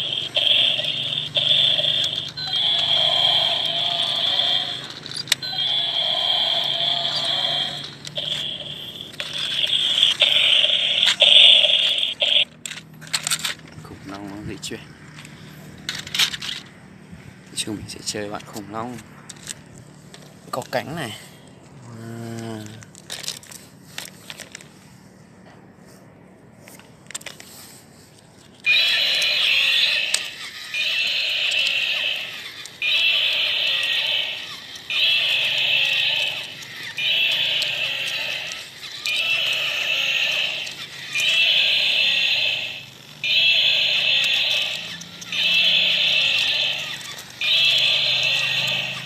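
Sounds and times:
sharp clicks and scrapes: 0.0 - 5.5, 6.2 - 13.8, 15.2 - 16.7
toy tinny electronic sound: 0.0 - 12.5, 28.6 - 49.0
toy mechanism clicks: 0.0 - 13.8, 15.1 - 16.7, 19.3 - 20.8, 22.3 - 24.7, 26.7 - 27.5, 28.2 - 49.0.

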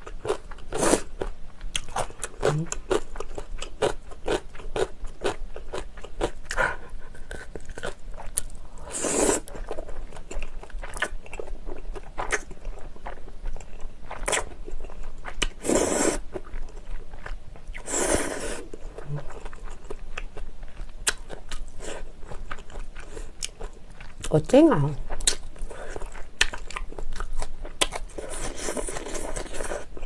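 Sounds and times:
wet chewing clicks and smacks: 25.1 - 28.1.

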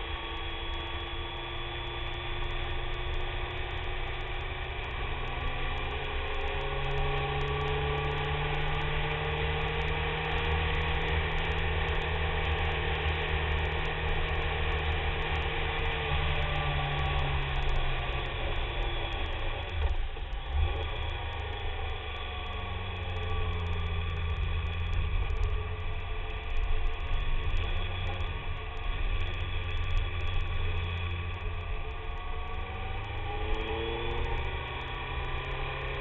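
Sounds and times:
motorcycle engine running: 0.0 - 36.0.

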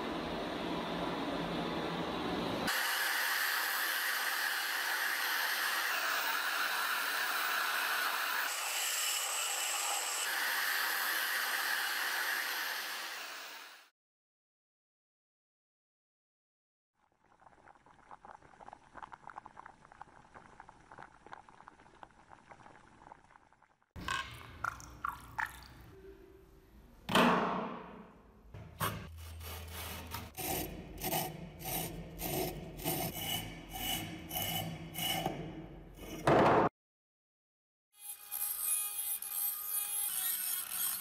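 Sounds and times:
fizzing crackle of bubbles: 17.0 - 24.0.

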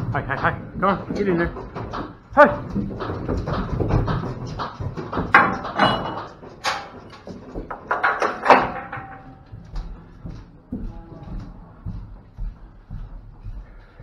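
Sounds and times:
hooves on metal floor: 0.0 - 14.0
metal gate clanging: 5.3 - 9.5.

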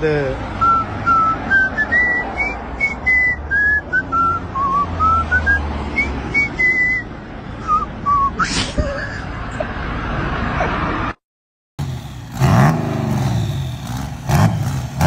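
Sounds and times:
person whistling a tune: 0.6 - 8.6.

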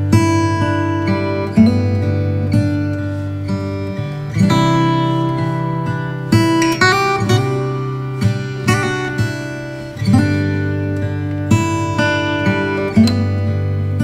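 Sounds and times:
acoustic guitar strumming chords: 0.0 - 14.0.

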